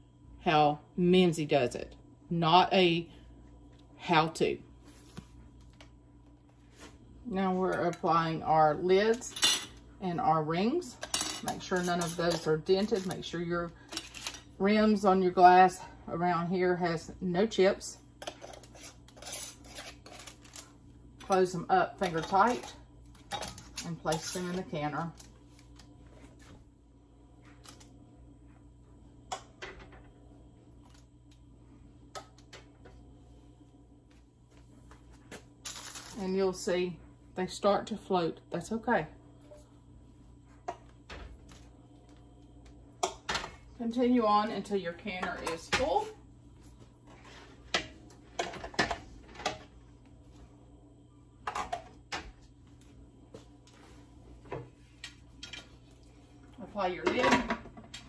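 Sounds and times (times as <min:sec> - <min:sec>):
faint steady hum: 0:00.0 - 0:58.0.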